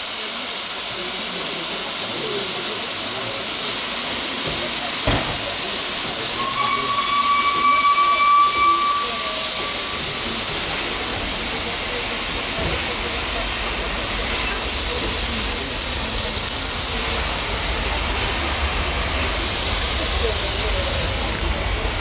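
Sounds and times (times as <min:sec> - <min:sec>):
steam hissing: 0:00.0 - 0:22.0
steam whistle: 0:04.4 - 0:11.0.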